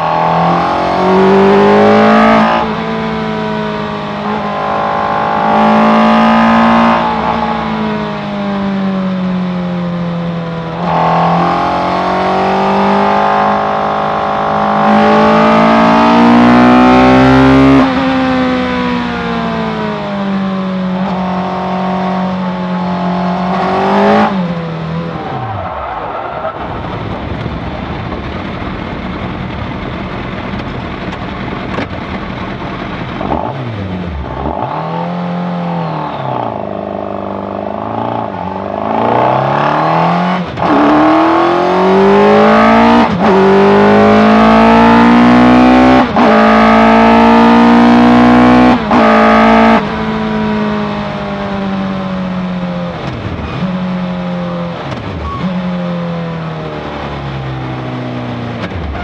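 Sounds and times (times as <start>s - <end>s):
car engine revving hard: 0.0s - 8.7s, 10.2s - 25.8s, 33.1s - 55.4s
noisy rush: 20.9s - 45.4s.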